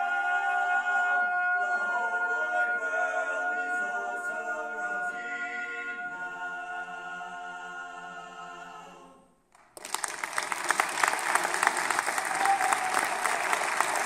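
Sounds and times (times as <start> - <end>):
male vocal quartet holding chord: 0.0 - 9.3
audience applause: 9.6 - 14.0.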